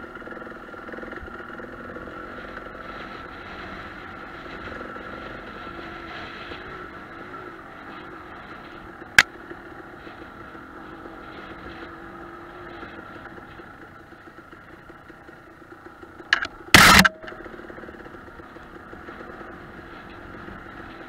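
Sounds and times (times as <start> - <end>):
dirt bike engine running: 0.0 - 21.0.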